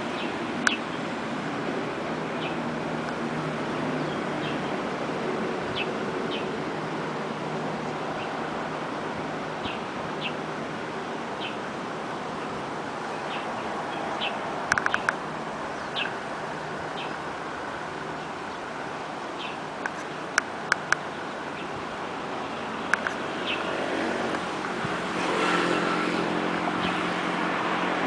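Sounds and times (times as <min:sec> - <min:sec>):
stream water rushing: 0:00.0 - 0:28.0
sharp clicks: 0:14.7 - 0:15.2.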